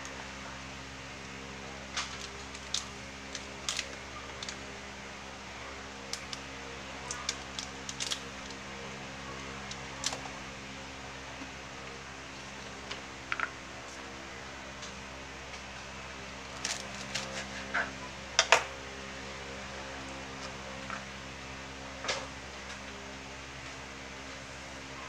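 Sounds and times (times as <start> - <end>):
low electrical hum: 0.0 - 25.0
beans clicking and rustling: 1.8 - 10.5, 16.5 - 17.5.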